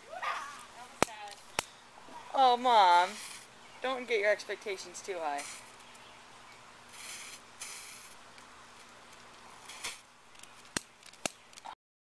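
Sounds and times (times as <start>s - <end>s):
firecracker fuses fizzing: 3.0s - 3.5s, 5.3s - 5.8s, 6.8s - 8.2s, 8.8s - 11.4s.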